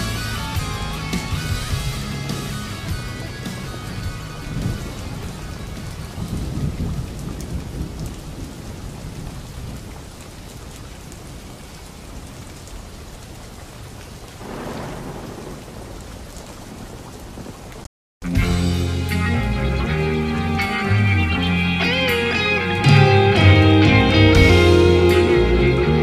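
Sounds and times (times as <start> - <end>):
thunder rumbling: 0.0 - 13.5, 14.2 - 17.9
steady rain: 0.0 - 26.0.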